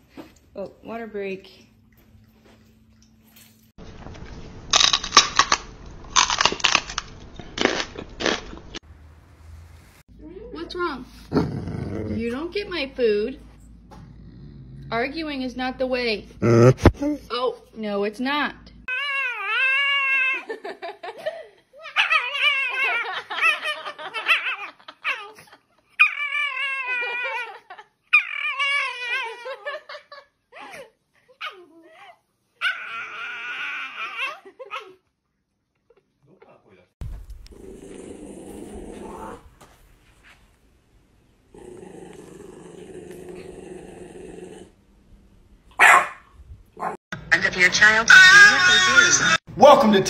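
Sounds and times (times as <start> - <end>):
dog growling: 11.2 - 12.4, 13.8 - 15.1, 16.3 - 17.2, 37.5 - 39.6, 41.5 - 44.8
dog giving high-pitched cries: 18.9 - 20.5, 21.8 - 25.4, 26.0 - 29.6, 31.4 - 35.0.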